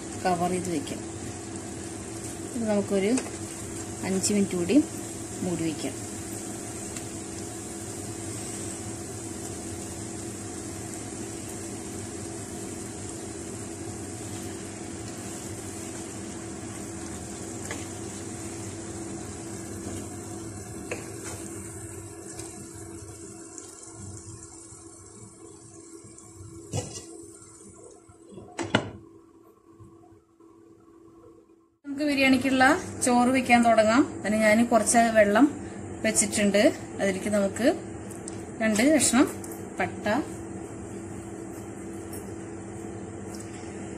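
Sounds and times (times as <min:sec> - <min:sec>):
food sizzling in a frying pan: 0:00.0 - 0:28.2.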